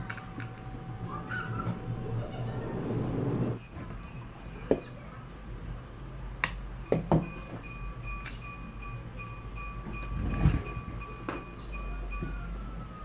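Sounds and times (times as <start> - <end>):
plastic and metal parts knocking: 6.4 - 8.6.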